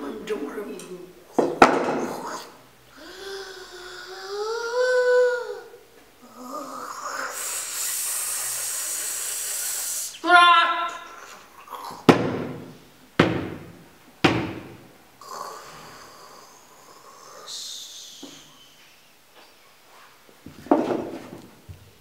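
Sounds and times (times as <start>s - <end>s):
airy hissing: 6.3s - 10.3s, 15.2s - 19.2s.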